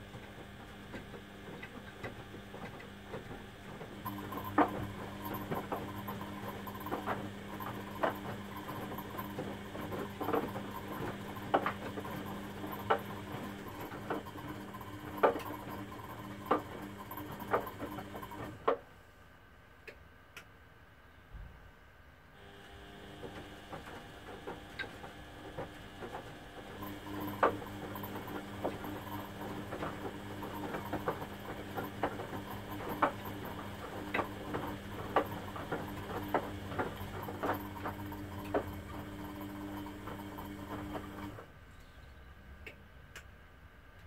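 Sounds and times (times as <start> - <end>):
washing machine motor hum: 0.0 - 18.8, 22.4 - 41.5.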